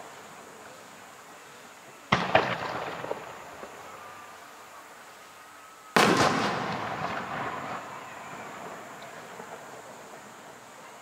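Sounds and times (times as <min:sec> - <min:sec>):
firework shells bursting: 0:02.1 - 0:04.3, 0:05.9 - 0:10.8
small firework cracks: 0:02.1 - 0:04.5, 0:05.9 - 0:11.0.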